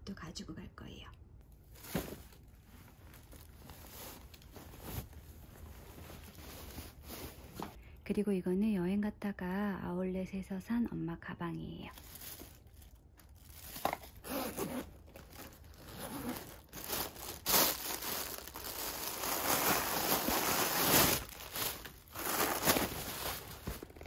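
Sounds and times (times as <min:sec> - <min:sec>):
plastic bags crinkling and rustling: 0:01.5 - 0:07.8, 0:11.8 - 0:24.0.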